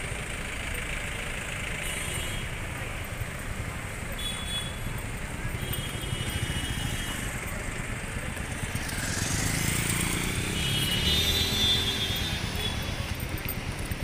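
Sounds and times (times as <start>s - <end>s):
motorcycle engine passing: 8.5s - 13.1s.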